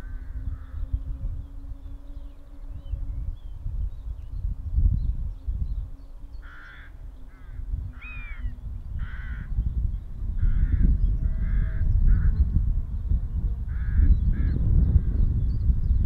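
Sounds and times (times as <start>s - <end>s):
crows cawing: 6.4s - 9.5s, 10.4s - 12.3s.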